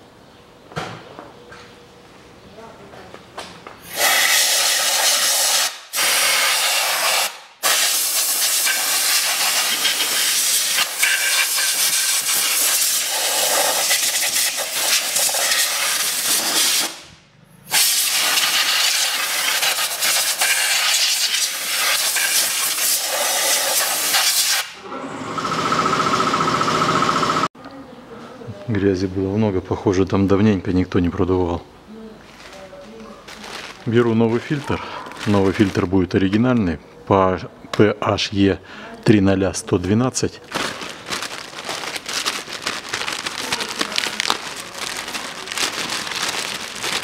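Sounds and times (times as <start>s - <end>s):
compressed air blow gun hissing: 3.8s - 17.0s, 17.7s - 24.8s.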